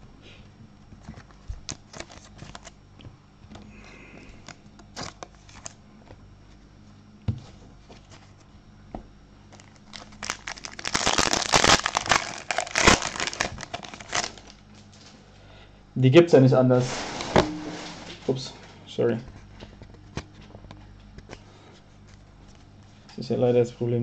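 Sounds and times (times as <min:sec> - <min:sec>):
cards rustling and clicking: 0:01.0 - 0:02.8, 0:04.4 - 0:05.8, 0:09.5 - 0:14.5
wrapper crinkling and tearing: 0:01.1 - 0:02.8, 0:04.9 - 0:05.8, 0:09.5 - 0:14.9.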